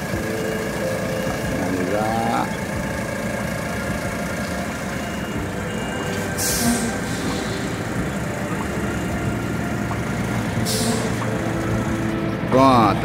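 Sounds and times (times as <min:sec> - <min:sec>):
diesel truck engine running: 0:00.0 - 0:13.0
air brake hiss: 0:06.2 - 0:07.9, 0:10.6 - 0:11.2.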